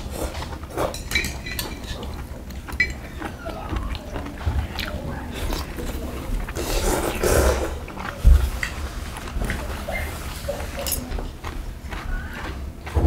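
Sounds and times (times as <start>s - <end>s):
chewing food: 0.0s - 13.0s
metal chopsticks clinking on bowls: 0.8s - 3.2s, 10.5s - 11.2s.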